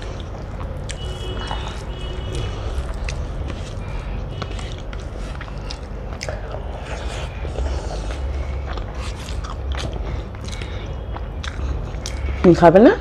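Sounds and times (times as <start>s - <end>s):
close-up chewing: 0.0s - 12.4s
low hum: 0.0s - 13.0s.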